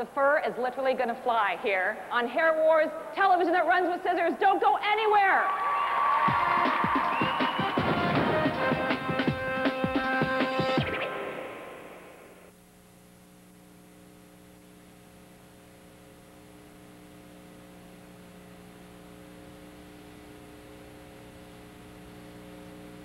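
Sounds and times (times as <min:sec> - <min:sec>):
electrical mains hum: 0:00.0 - 0:23.0
music: 0:06.2 - 0:12.1.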